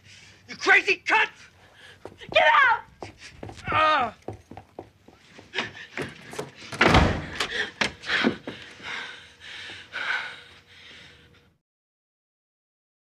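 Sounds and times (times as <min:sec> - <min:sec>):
man falling down carpeted stairs: 0:02.1 - 0:08.6.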